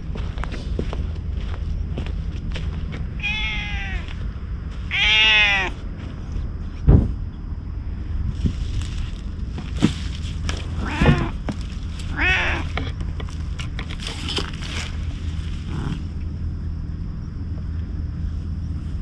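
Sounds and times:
low rumble: 0:00.0 - 0:19.0
cat meowing: 0:03.2 - 0:04.2, 0:04.9 - 0:05.8, 0:10.8 - 0:11.4, 0:12.1 - 0:12.8
clicks and rustles: 0:08.7 - 0:15.3.

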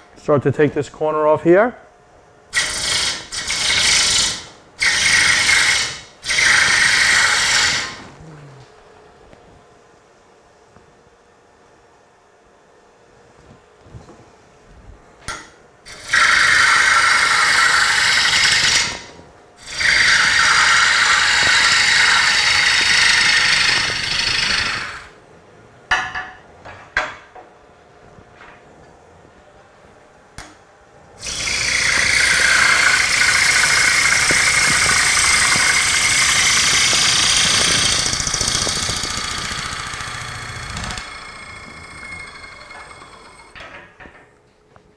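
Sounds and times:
gouge cutting wood on lathe: 0:02.6 - 0:08.0, 0:15.9 - 0:25.1, 0:31.2 - 0:43.6.

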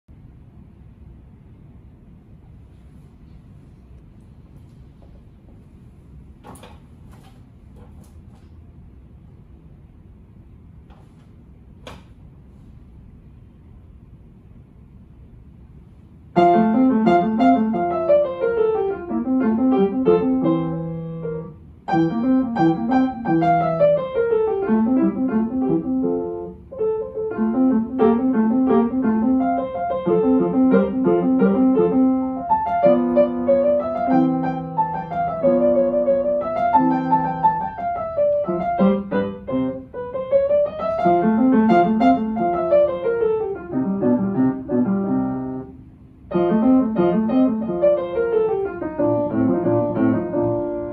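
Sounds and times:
upright piano playing: 0:16.3 - 0:50.9.

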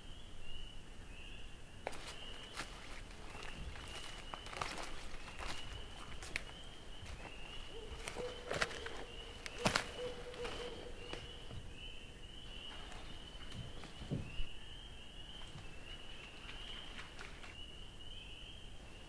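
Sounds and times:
footsteps on leaf litter: 0:01.9 - 0:11.6.

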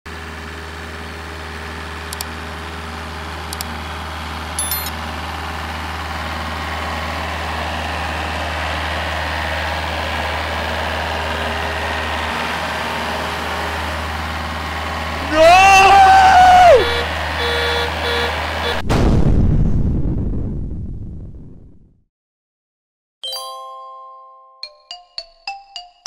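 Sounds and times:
monster truck engine rumble: 0:00.1 - 0:21.9
sharp clicks: 0:02.1 - 0:02.3, 0:03.5 - 0:03.7
ringing click: 0:04.6 - 0:04.9.

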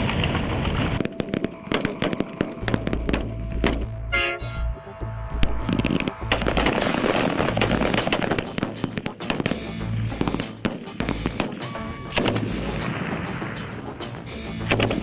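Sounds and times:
rifle shots: 0:01.0 - 0:03.9, 0:05.4 - 0:13.9, 0:14.6 - 0:15.0
background music: 0:01.0 - 0:15.0.

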